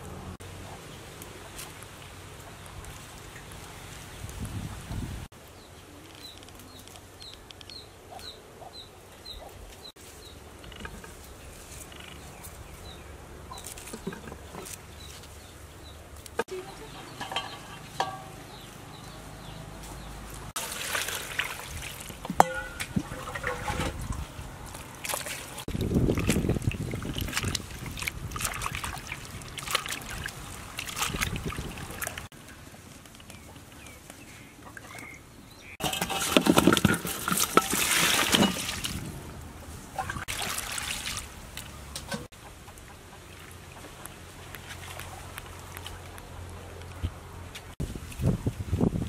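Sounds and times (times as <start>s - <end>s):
water sloshing and splashing: 20.3s - 32.4s, 35.7s - 42.3s.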